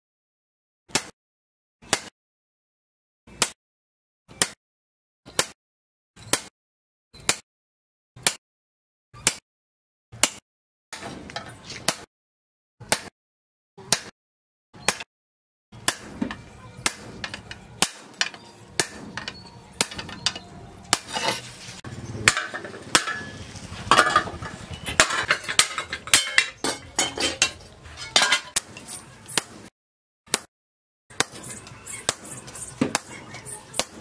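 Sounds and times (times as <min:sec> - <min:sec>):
hammer striking steel on anvil: 0:15.8 - 0:21.4, 0:22.2 - 0:29.7, 0:30.3 - 0:30.5, 0:31.1 - 0:33.2, 0:33.8 - 0:34.0.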